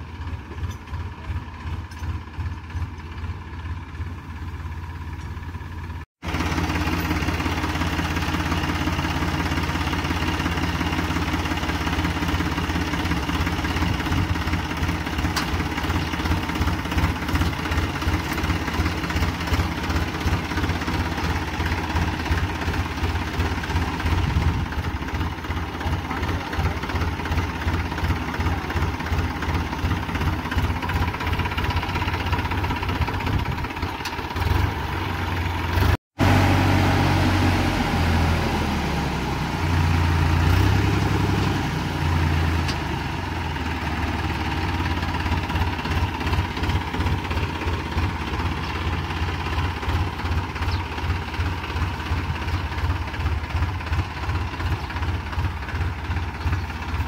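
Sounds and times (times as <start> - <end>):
diesel tractor engine throbbing: 0.0 - 57.0.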